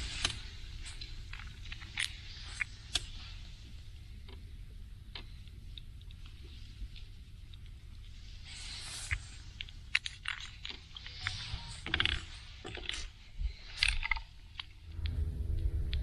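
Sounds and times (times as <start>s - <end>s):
low motor hum: 14.8s - 16.0s.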